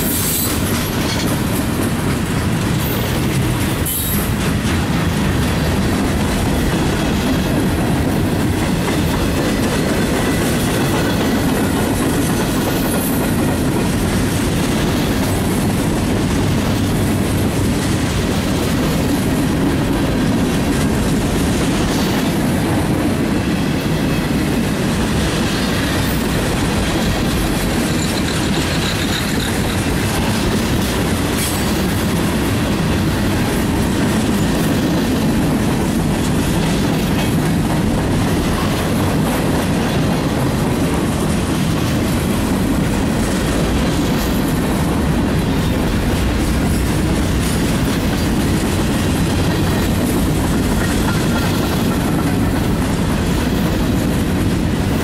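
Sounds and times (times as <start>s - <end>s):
train wheels rumbling on rail: 0.0s - 55.0s.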